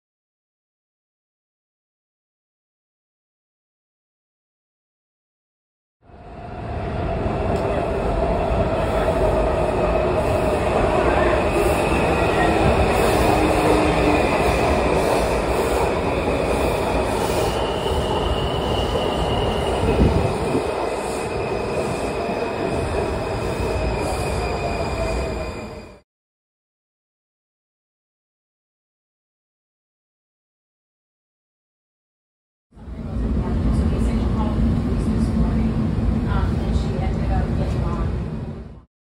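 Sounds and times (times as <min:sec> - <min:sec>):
subway train rail rumble: 0:06.1 - 0:26.0, 0:32.8 - 0:38.9.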